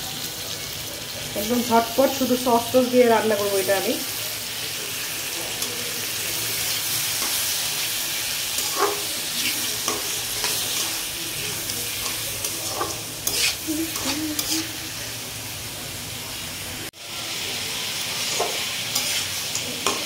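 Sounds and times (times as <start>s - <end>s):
prawns sizzling in hot oil: 0.0s - 20.0s
metal spatula scraping pan: 8.4s - 14.8s, 18.2s - 20.0s.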